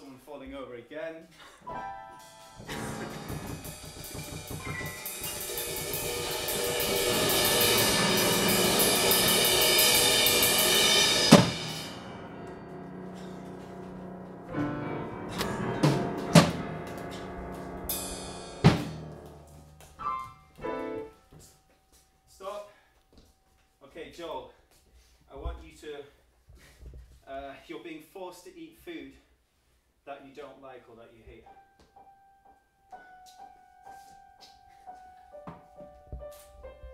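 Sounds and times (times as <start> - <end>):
drum kit playing: 1.7 - 21.1.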